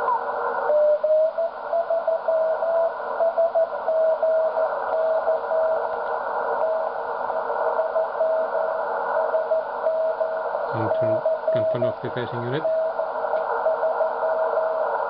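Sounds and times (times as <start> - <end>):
radio band noise hiss: 0.0 - 15.0
morse code tone: 9.4 - 13.1.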